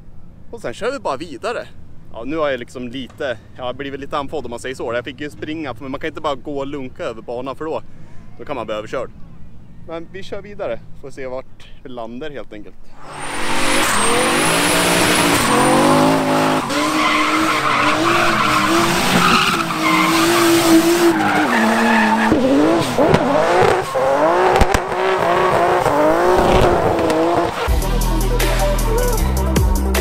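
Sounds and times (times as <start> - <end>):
car engine revving hard: 13.0 - 27.7
tyres spinning and squealing: 13.0 - 27.7.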